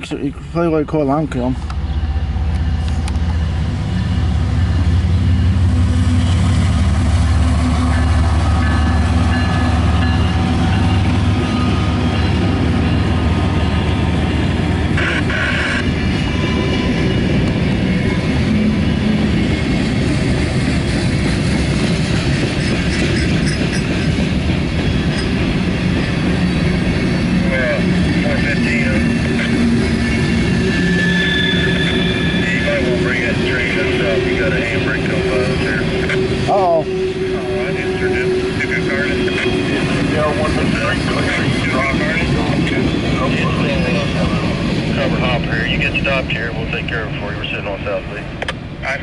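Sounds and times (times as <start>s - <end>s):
freight train rumbling past: 0.0s - 49.0s
high-pitched wheel squeal: 26.4s - 41.4s.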